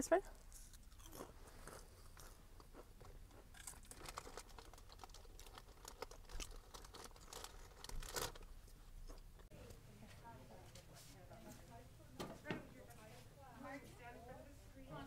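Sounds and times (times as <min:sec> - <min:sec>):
handling noise crackling and clicks: 0:03.6 - 0:08.5.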